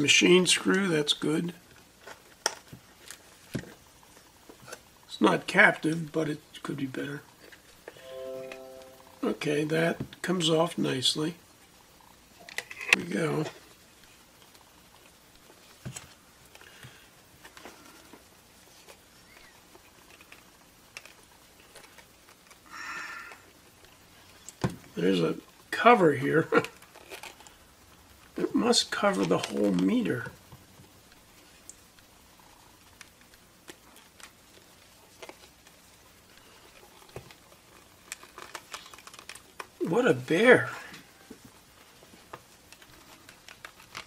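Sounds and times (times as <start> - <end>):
faint clicks and rubs: 32.8 - 39.8, 41.4 - 44.0.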